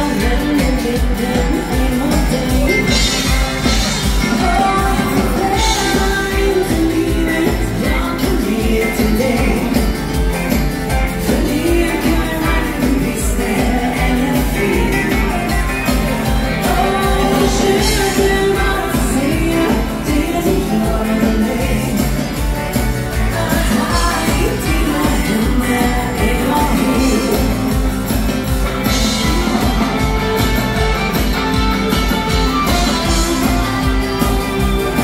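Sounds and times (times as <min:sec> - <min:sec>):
woman singing: 0:00.0 - 0:10.4, 0:11.1 - 0:28.0
upbeat rock and roll band: 0:00.0 - 0:35.0.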